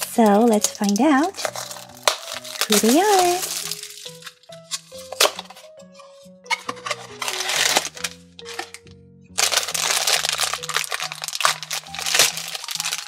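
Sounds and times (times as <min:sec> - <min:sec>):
plastic bag crinkling: 0:00.0 - 0:05.6, 0:06.5 - 0:08.8, 0:09.4 - 0:13.0
light background music: 0:00.0 - 0:13.0
cardboard box tearing: 0:06.5 - 0:08.8, 0:09.4 - 0:13.0.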